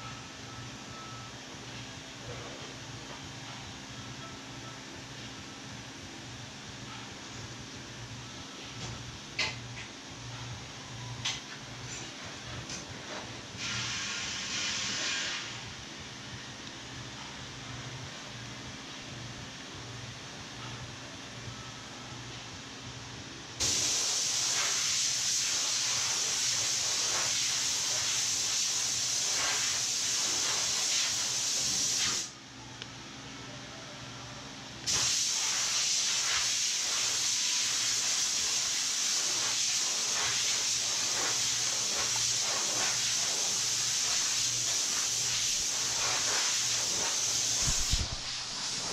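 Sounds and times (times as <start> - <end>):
loud steady hiss: 13.6 - 15.7, 23.6 - 32.4, 34.8 - 48.9.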